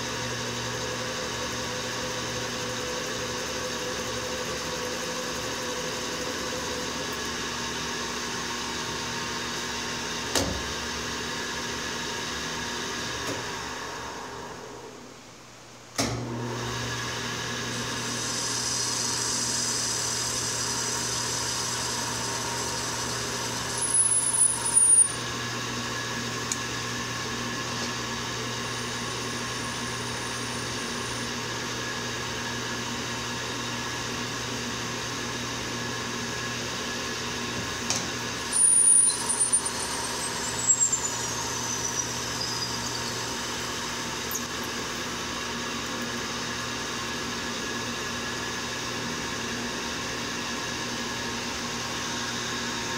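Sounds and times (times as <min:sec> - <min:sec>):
lathe running with hum: 0:00.0 - 0:15.0, 0:16.2 - 0:52.9
high machine squeal: 0:22.1 - 0:25.2, 0:29.0 - 0:31.3, 0:38.5 - 0:44.9.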